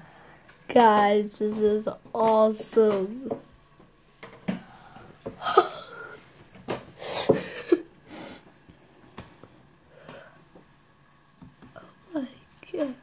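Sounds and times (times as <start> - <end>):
girl giggling and gasping: 5.4 - 6.2.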